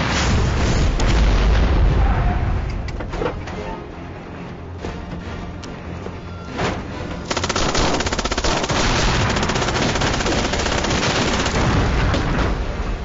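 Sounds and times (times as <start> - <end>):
machine-gun fire rattle: 7.3 - 12.1.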